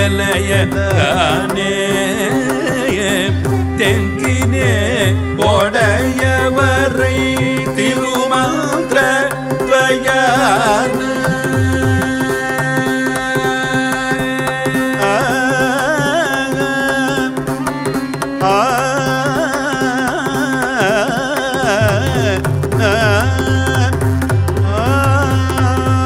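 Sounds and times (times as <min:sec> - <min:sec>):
mridangam strokes: 0:00.0 - 0:26.0
person singing: 0:00.0 - 0:26.0
tanpura drone: 0:00.0 - 0:26.0.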